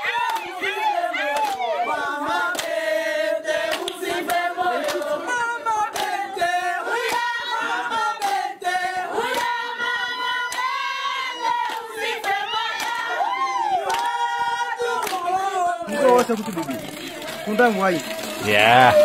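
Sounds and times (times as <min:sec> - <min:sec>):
group of voices singing: 0:00.0 - 0:19.0
hand claps: 0:00.2 - 0:00.6, 0:01.3 - 0:01.7, 0:02.4 - 0:02.8, 0:03.6 - 0:07.4, 0:08.0 - 0:08.5, 0:09.2 - 0:10.9, 0:11.5 - 0:13.2, 0:13.8 - 0:19.0.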